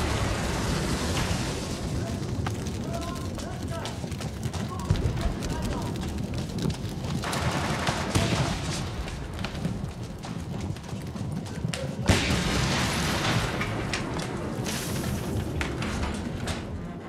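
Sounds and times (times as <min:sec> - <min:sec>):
loud burst of noise: 0:00.0 - 0:02.8, 0:12.1 - 0:15.8
low rumble: 0:00.0 - 0:10.8
gunfire: 0:07.2 - 0:10.4, 0:11.8 - 0:16.1
dull booms: 0:12.0 - 0:16.6.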